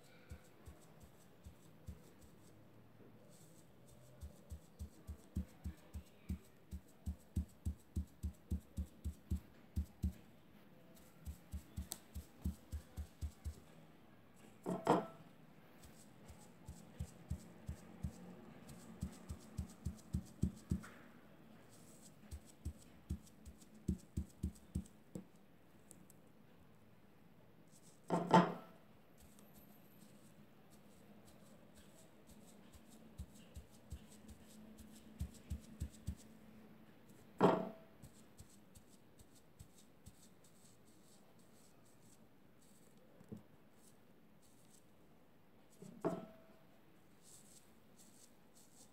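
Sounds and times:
sponge tapping on cloth: 4.2 - 10.2, 11.2 - 13.6, 16.7 - 20.9, 22.3 - 24.9.

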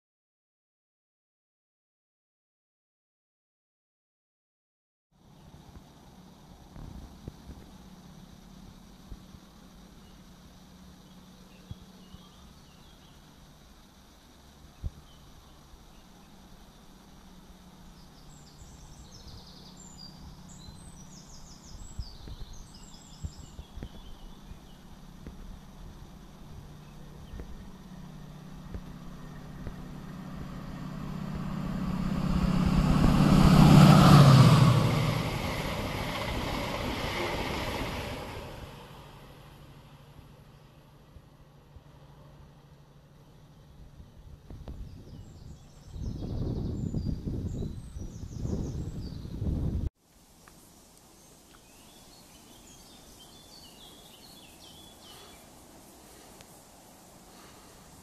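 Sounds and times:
diesel train engine drone: 5.2 - 50.5, 53.1 - 58.0
wheels rushing on rail: 5.2 - 50.6, 51.2 - 58.0
quiet outdoor hiss: 5.2 - 58.0.

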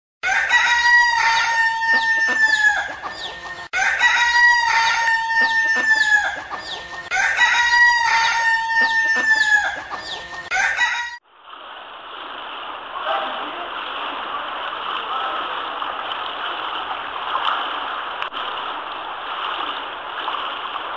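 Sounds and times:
rooster crowing: 0.2 - 3.1, 3.7 - 11.2
hens clucking: 1.4 - 3.7, 4.8 - 7.2, 8.6 - 10.9.

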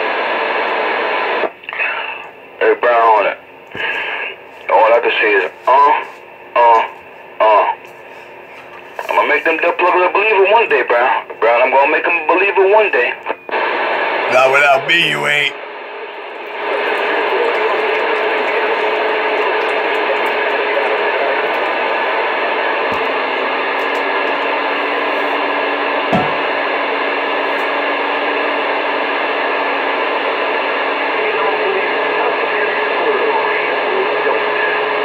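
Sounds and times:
radio static hiss: 0.0 - 15.6, 16.6 - 35.0
dull thump: 26.1 - 26.5.

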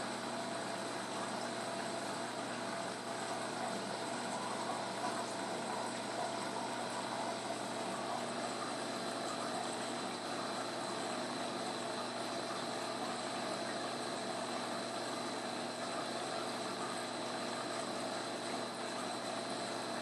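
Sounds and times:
aquarium pumps and circulating water: 0.0 - 20.0.

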